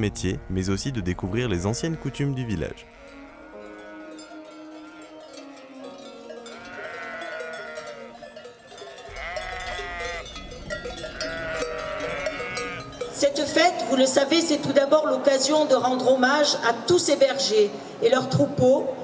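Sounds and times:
sheep bleating: 0.0 - 8.2, 9.1 - 10.4, 11.0 - 12.9.

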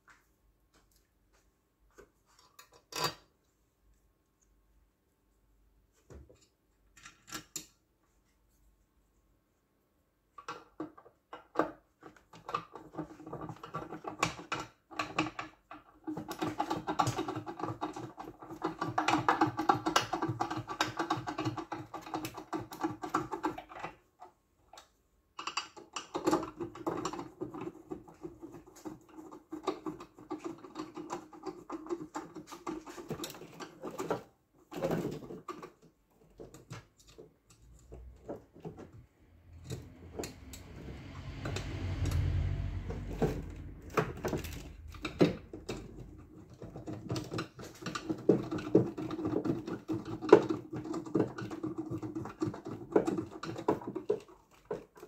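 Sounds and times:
hand tools clicking and rattling: 43.0 - 55.0.

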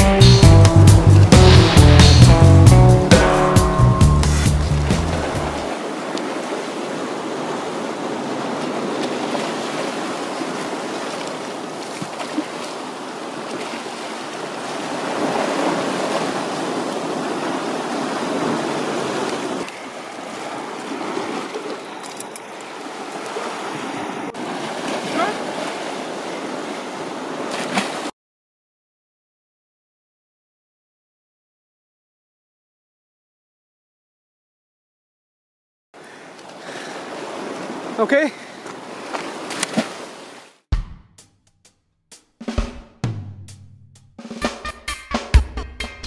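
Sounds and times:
surf washing over rocks: 0.8 - 28.1, 36.0 - 40.6.

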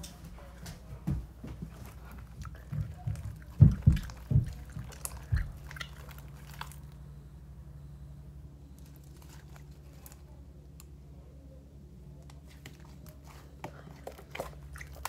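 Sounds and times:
handling knocks and thumps: 2.6 - 5.7.

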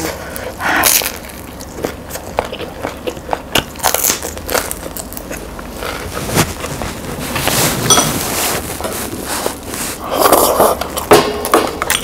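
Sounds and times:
chewing with mouth clicks: 0.3 - 6.1
bread crust crunching: 0.3 - 11.1.

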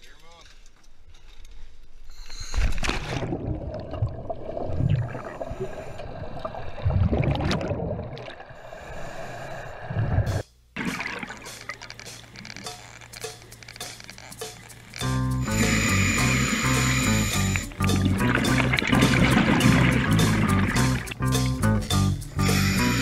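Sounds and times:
underwater bubbling: 3.0 - 11.8, 15.5 - 21.2.

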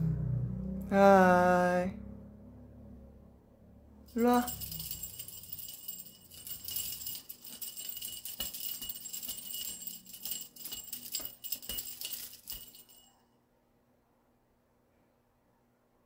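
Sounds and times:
small jingle bells jingling: 4.1 - 13.2.

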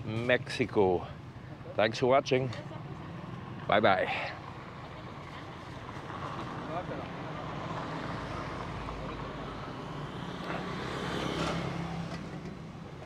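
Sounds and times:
road noise rumble: 0.0 - 13.0
vehicle passing: 2.7 - 13.0.

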